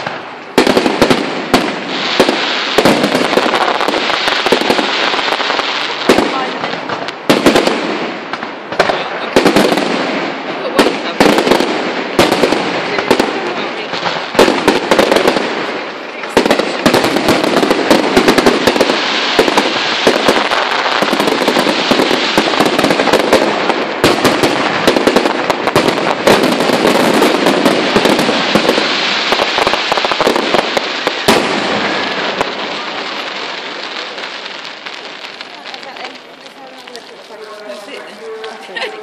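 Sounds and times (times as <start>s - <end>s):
fireworks bursting: 0.0s - 39.0s
fireworks crackling: 0.0s - 39.0s
sharp firework bang: 6.1s - 32.8s.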